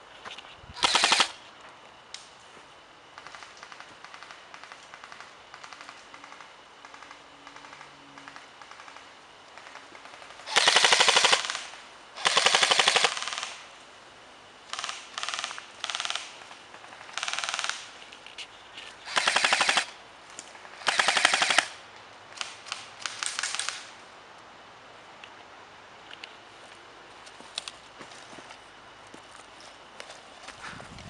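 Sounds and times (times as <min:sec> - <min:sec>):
airsoft rifle full-auto bursts: 0:00.8 - 0:01.4, 0:09.6 - 0:13.6, 0:14.7 - 0:16.4, 0:17.1 - 0:17.8, 0:19.0 - 0:20.0, 0:20.8 - 0:21.8.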